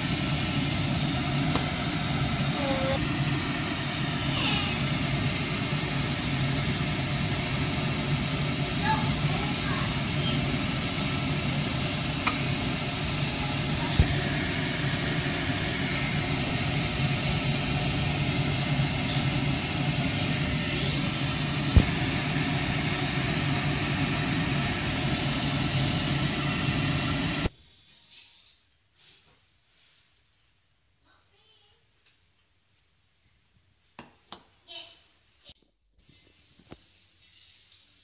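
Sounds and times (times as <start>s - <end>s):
low hum: 0.0s - 27.5s
noodles stir-frying in pan: 0.0s - 27.5s.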